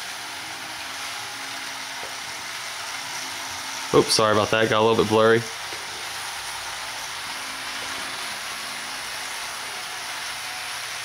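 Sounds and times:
model train running on track: 0.0s - 11.0s.

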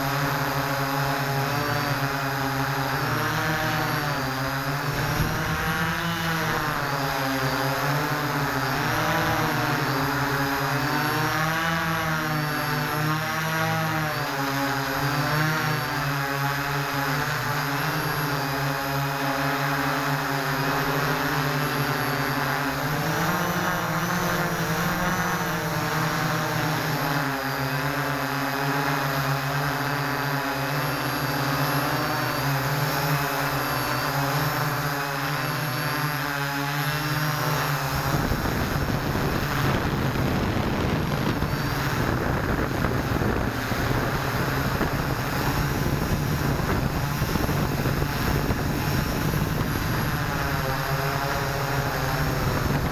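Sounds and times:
drone propellers whining: 0.0s - 52.9s
wind noise on microphone: 3.4s - 12.2s, 37.4s - 52.9s.

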